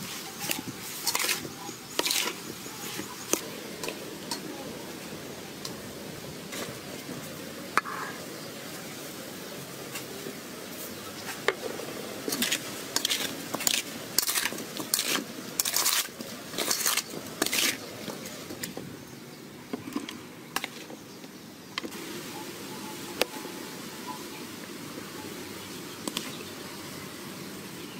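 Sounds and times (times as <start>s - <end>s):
fruit scraping in metal bowl: 0.0s - 4.4s, 7.8s - 8.2s, 11.3s - 18.8s.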